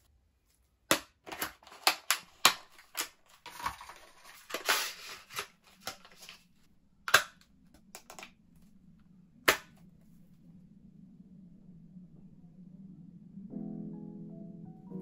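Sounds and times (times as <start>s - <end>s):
cardboard packaging rustling: 1.2s - 6.6s
box sharp clicks: 7.1s - 8.3s.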